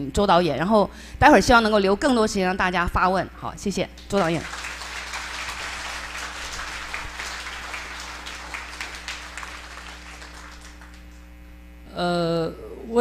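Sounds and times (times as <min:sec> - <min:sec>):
steady electrical hum: 0:00.0 - 0:13.0
audience applauding: 0:04.2 - 0:11.2.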